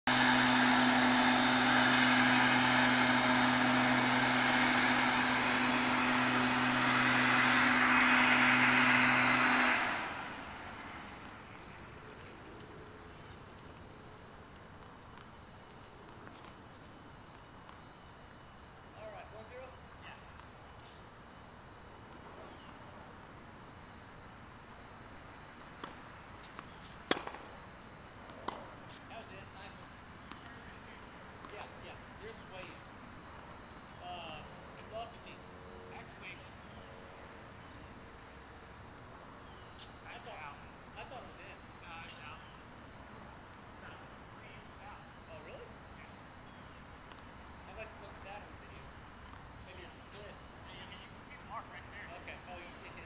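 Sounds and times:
low machine hum: 0.1 - 16.1
constant hiss: 0.1 - 53.0
racket hitting tennis ball: 25.8 - 27.5
tennis ball bounce: 25.8 - 27.5.

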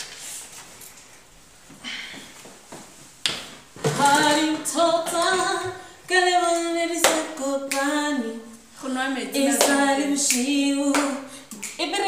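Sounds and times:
woman singing unaccompanied: 3.9 - 12.0
sharp hand claps: 7.0 - 7.9, 9.6 - 11.8.

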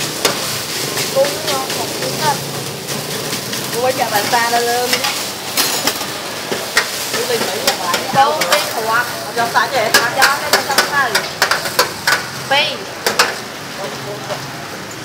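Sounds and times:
metal spatula scraping griddle: 0.0 - 12.4
noodles sizzling on griddle: 0.0 - 15.0.

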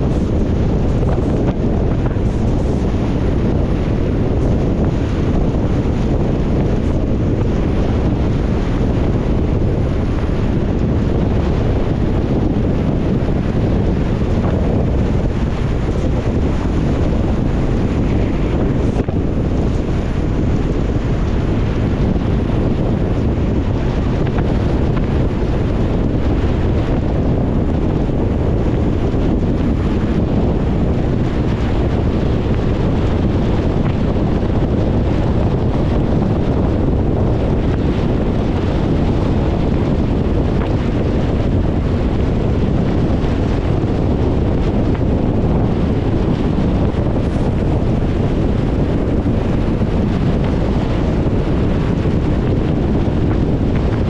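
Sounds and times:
car low rumble: 0.0 - 54.0
wind: 0.0 - 54.0.

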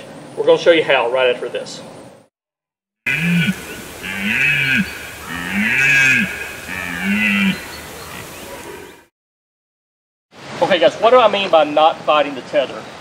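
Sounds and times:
deer stag roaring: 3.1 - 9.0.

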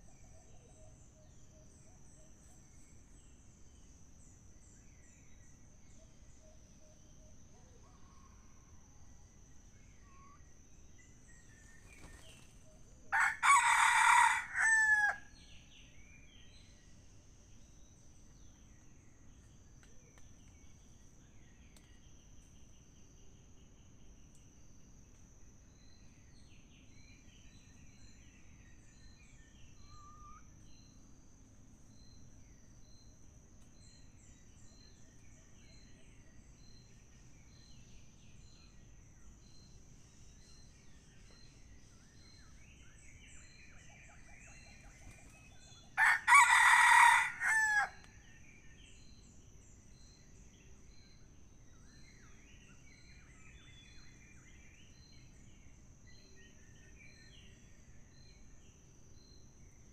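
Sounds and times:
faint small-bird calls: 4.6 - 24.5, 25.8 - 31.1, 32.9 - 57.7
rooster crowing: 13.1 - 15.3, 46.0 - 48.0.

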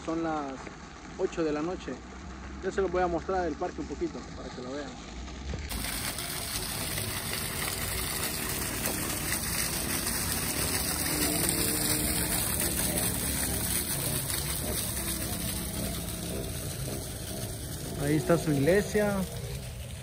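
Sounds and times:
fountain water splashing into basin: 0.0 - 20.0.

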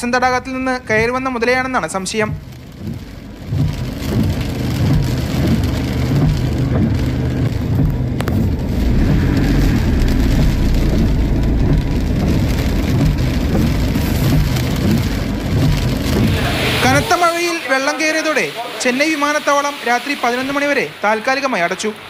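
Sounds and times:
heavy rain falling: 0.0 - 22.0
low steady rumble: 2.4 - 17.0.

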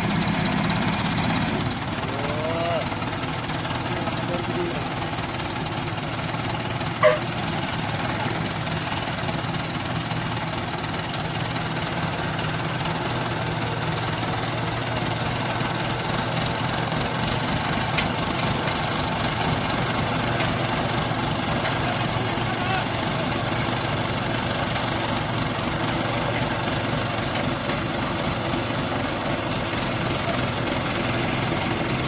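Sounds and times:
diesel engine running: 0.0 - 32.0
high-pitched toot: 7.0 - 7.3.

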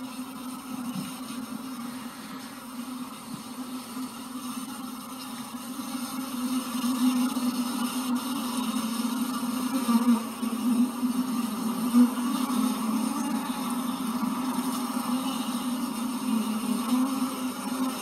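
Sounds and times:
honeybees buzzing: 0.0 - 18.0.

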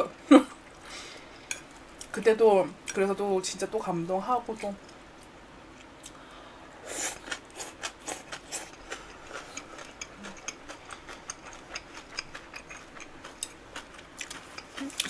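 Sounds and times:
chewing noodles: 6.9 - 15.0.

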